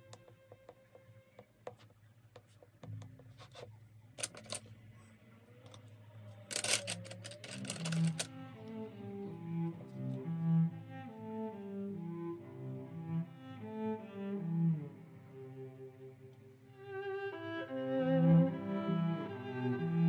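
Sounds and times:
drawing materials clicking: 0.0 - 4.7, 6.5 - 8.8
low bowed-string notes: 5.8 - 20.0.

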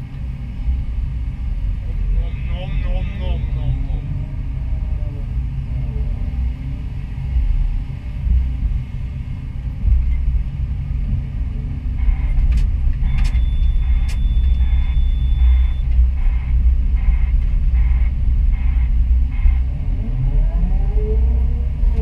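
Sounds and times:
excavator diesel engine rumble: 0.0 - 22.0
high pulsing noise: 13.0 - 19.7.

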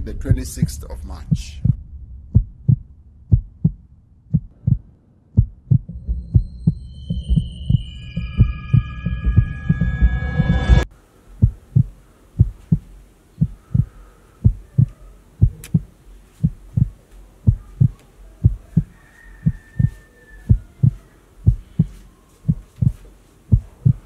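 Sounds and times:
heartbeat thumps: 0.0 - 10.8, 11.4 - 24.0.

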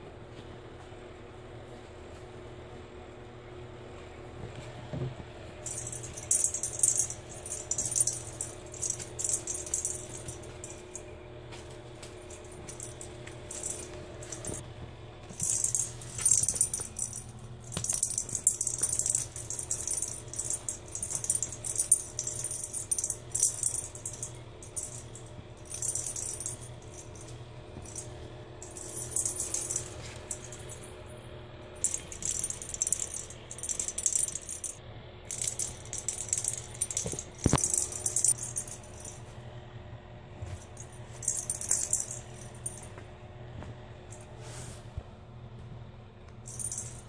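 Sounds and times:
toy ball rattling: 5.6 - 11.1, 12.1 - 14.6, 15.3 - 30.9, 31.8 - 39.2, 40.8 - 42.9, 46.4 - 47.0.

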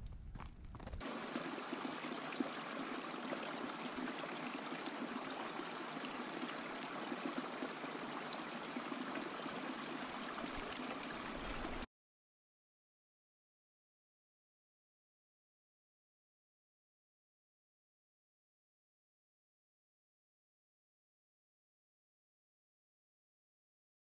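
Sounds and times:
creek babbling over rocks: 1.0 - 11.9.

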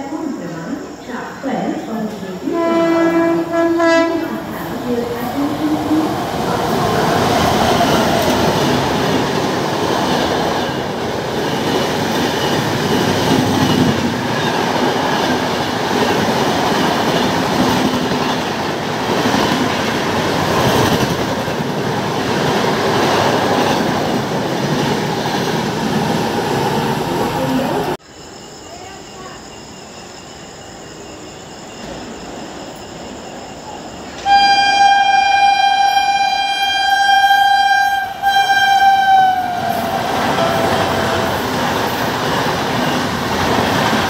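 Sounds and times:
train wheels rattling on rails: 1.8 - 28.0, 35.8 - 44.0
train horn blast: 2.4 - 4.4, 34.2 - 41.4.

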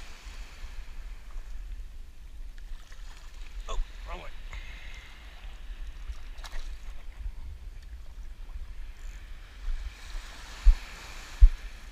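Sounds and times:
wind buffeting microphone: 0.0 - 11.9
seawater lapping: 2.5 - 11.9.

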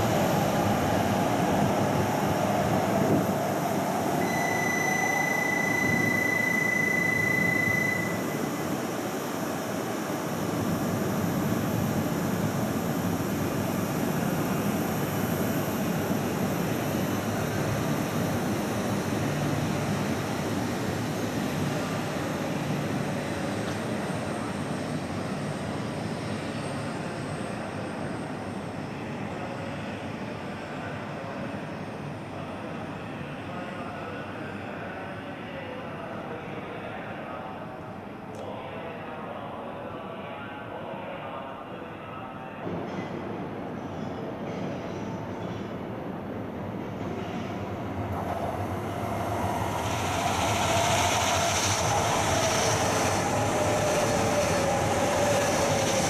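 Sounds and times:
train accelerating away: 0.0 - 26.1, 46.2 - 56.0
steady high-pitched beep: 4.2 - 8.6.

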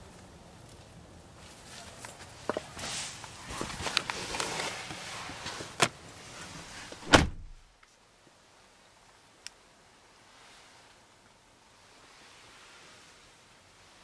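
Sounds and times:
car door thump: 7.0 - 7.6
door latch click: 7.0 - 7.6.

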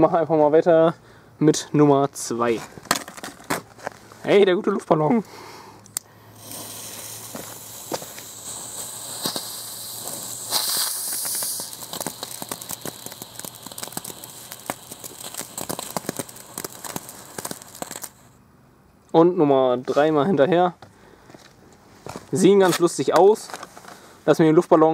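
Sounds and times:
firework fountain hissing: 6.2 - 18.4
dense crackling: 6.4 - 18.4.

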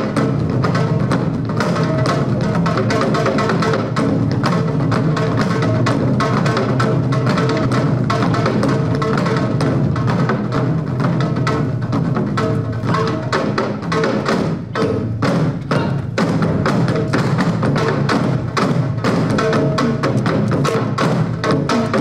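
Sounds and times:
hourglass drum playing fast rhythm: 0.0 - 22.0
large barrel drums struck with sticks: 0.0 - 22.0.

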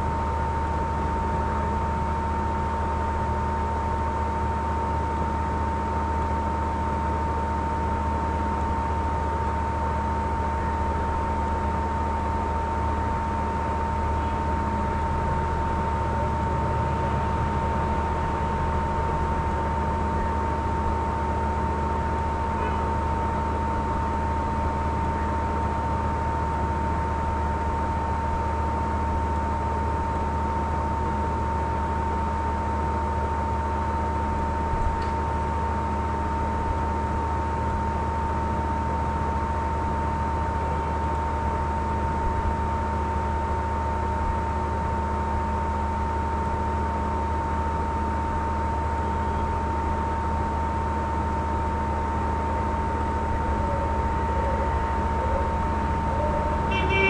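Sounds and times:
electrical hum: 0.0 - 57.0
high-pitched tone: 53.5 - 57.0.

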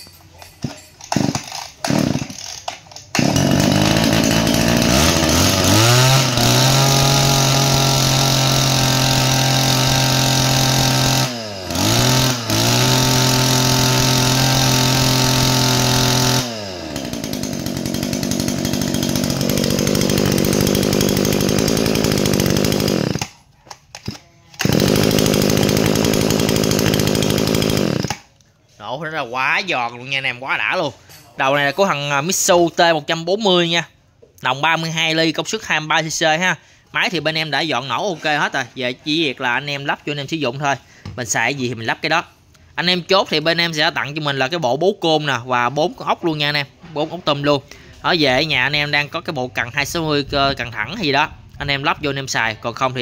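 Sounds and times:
recoil starter pulls: 0.4 - 28.3
two-stroke engine revving and idling: 1.0 - 23.3, 24.0 - 28.3.

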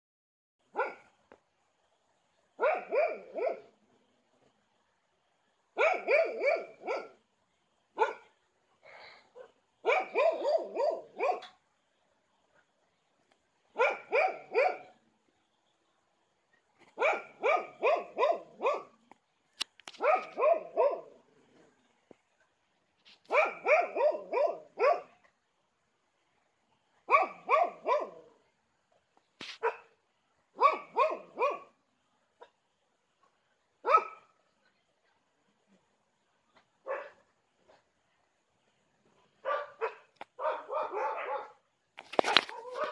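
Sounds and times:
dogs barking: 0.7 - 1.1, 2.6 - 3.7, 5.8 - 7.2, 9.4 - 11.6, 13.7 - 15.0, 16.9 - 19.0, 20.0 - 21.2, 23.3 - 25.2, 27.1 - 28.3, 30.6 - 31.8, 33.8 - 34.3, 36.8 - 37.2, 39.4 - 41.6, 42.3 - 42.9.

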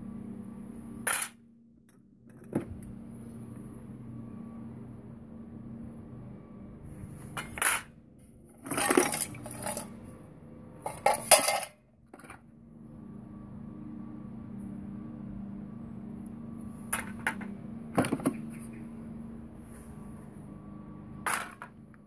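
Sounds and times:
faint steady hum: 0.0 - 22.0
metal tools clattering in a crate: 7.4 - 7.9, 8.5 - 10.0, 10.8 - 12.4.

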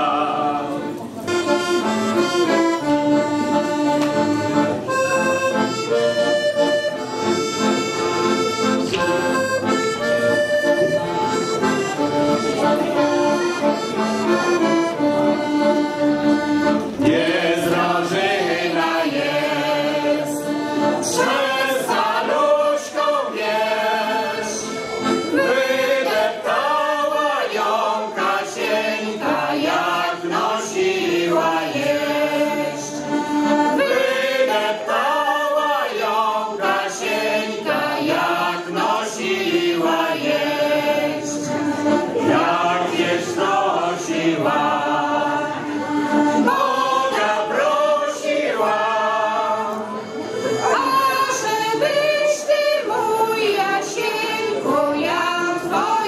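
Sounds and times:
group of singers: 0.0 - 1.2, 16.2 - 56.0
accordion folk melody: 0.0 - 56.0.

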